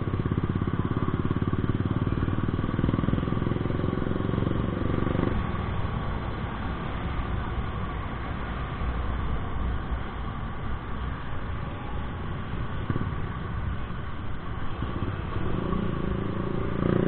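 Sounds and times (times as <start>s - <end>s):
scooter engine running: 0.0s - 5.6s
road rumble: 0.0s - 17.0s.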